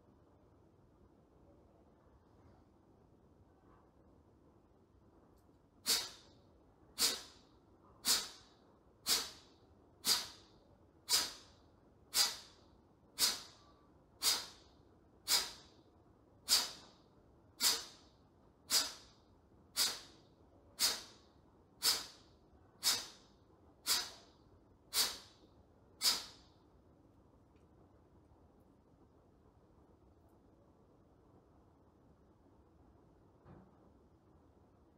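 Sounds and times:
forceful nasal exhalations: 5.8 - 6.3, 7.0 - 7.4, 8.0 - 10.5, 11.1 - 11.5, 12.1 - 12.6, 13.2 - 15.8, 16.4 - 17.0, 17.6 - 18.1, 18.7 - 19.1, 19.8 - 20.2, 20.8 - 24.3, 24.9 - 25.4, 26.0 - 26.5.

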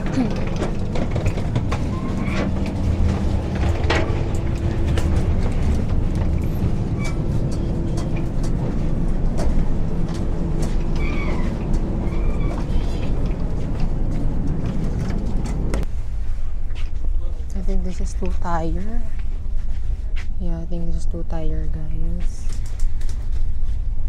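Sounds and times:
rattles and knocks: 0.0 - 15.9
train coach rumbling: 0.0 - 24.0.

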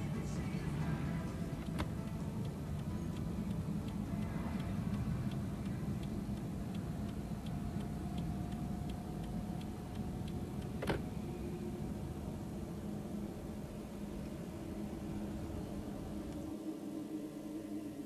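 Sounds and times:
low hum: 0.0 - 18.0
steady ticking: 1.3 - 10.8.

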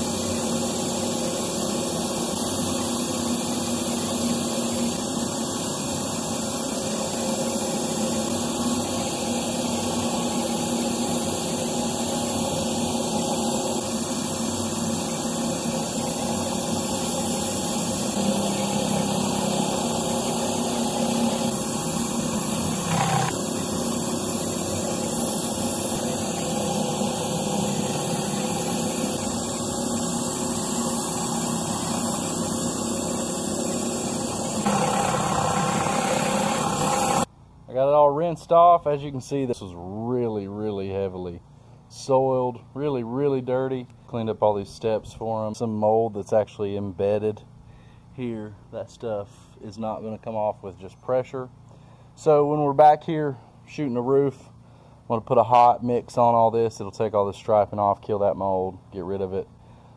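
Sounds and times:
pressure washer engine and pump: 0.0 - 37.3
pressure washer spray hiss: 8.2 - 37.3.

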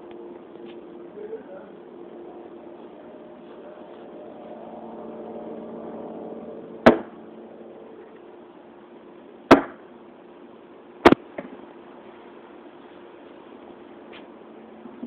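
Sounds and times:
faint steady hum: 0.0 - 15.0
darts striking a dartboard: 6.9 - 7.1, 9.5 - 9.8.

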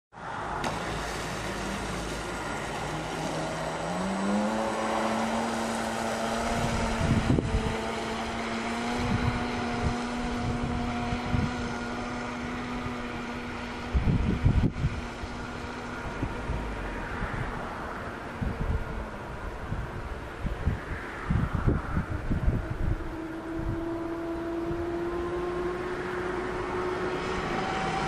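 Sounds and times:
electric motor whine: 0.6 - 16.8, 22.7 - 28.0
wind buffeting microphone: 0.7 - 28.0.

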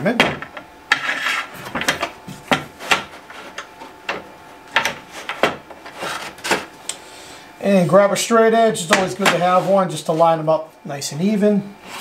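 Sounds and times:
metal scraping on wood: 0.9 - 2.0, 5.0 - 6.6.

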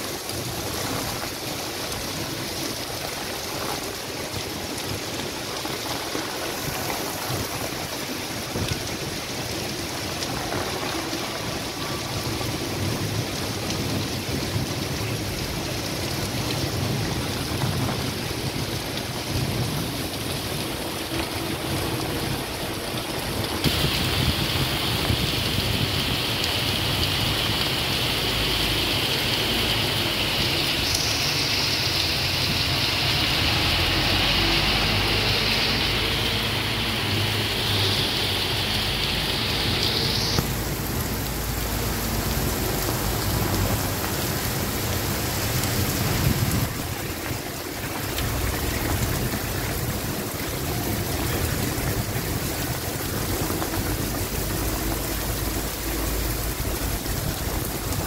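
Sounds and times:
heavy rain on pavement: 0.0 - 58.0.

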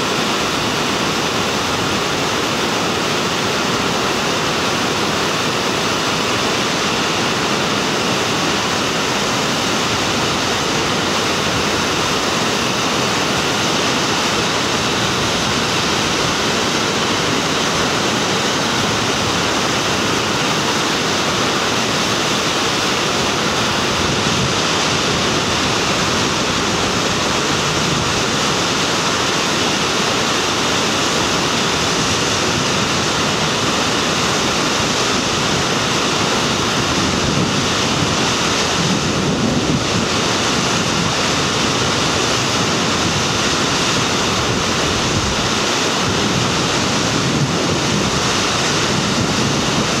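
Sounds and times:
whitewater rapid rushing: 0.0 - 50.0.

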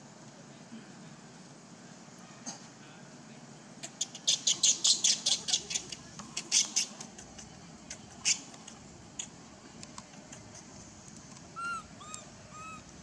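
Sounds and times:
monkey calls: 3.8 - 9.3, 11.6 - 12.9.

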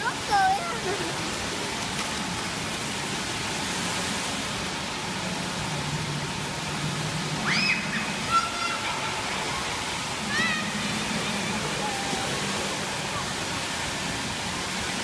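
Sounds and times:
child's high call: 7.4 - 9.2.

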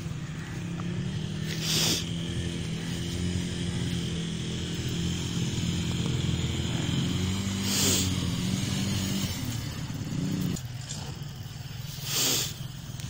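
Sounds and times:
vehicle engine running: 0.0 - 13.0
short breathy hiss: 1.4 - 2.2, 7.6 - 8.2, 11.9 - 12.7.

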